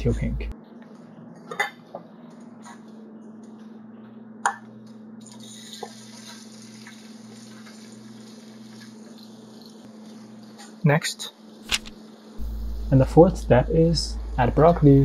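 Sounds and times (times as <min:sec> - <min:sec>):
shrimp sizzling in oil: 0:05.4 - 0:10.5
low hum: 0:11.7 - 0:15.0.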